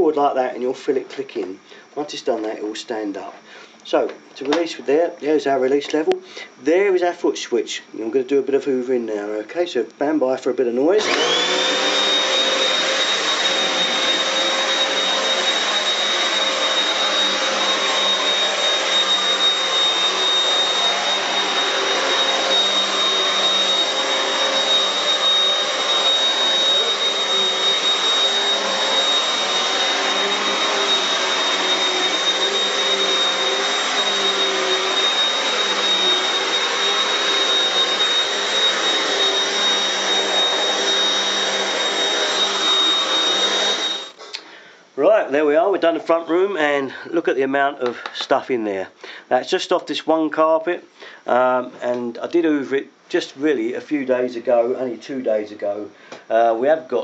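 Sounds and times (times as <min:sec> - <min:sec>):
vacuum cleaner running: 0:10.8 - 0:44.4.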